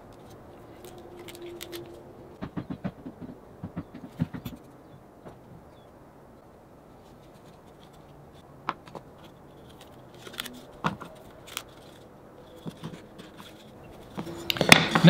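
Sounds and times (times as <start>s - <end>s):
faint scratching: 9.1s - 15.0s.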